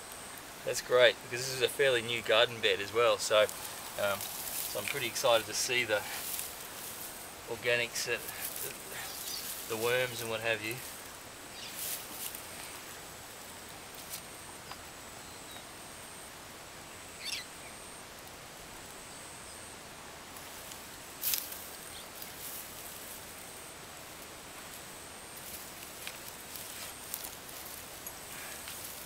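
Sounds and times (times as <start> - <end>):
outdoor hiss: 0.0 - 29.0
hands rustling through soil: 0.7 - 13.1, 20.3 - 29.0
bird chirp: 9.0 - 9.6, 11.5 - 11.9, 17.1 - 17.8.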